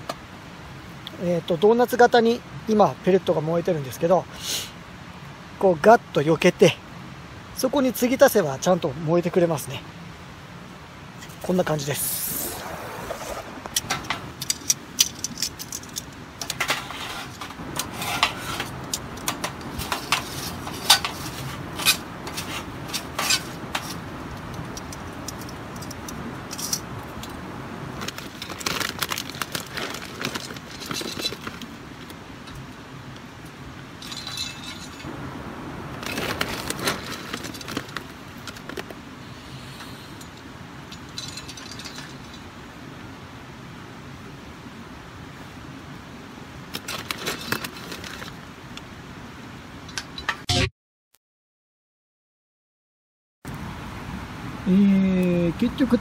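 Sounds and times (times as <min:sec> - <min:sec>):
low rush of flame: 0:11.1 - 0:14.8
rustling rattling: 0:12.5 - 0:31.8, 0:34.0 - 0:35.1, 0:36.0 - 0:38.9, 0:40.9 - 0:42.5, 0:46.8 - 0:48.4
wood pellets crackling and popping: 0:17.4 - 0:32.2.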